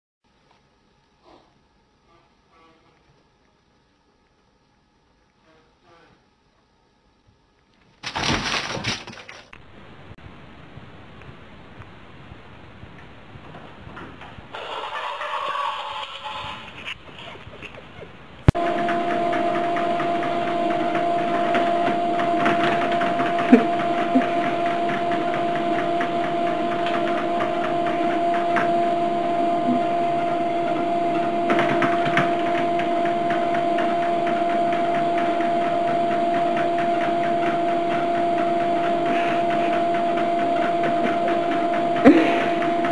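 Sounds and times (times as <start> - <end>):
small machine humming and rattling: 18.5 - 42.9.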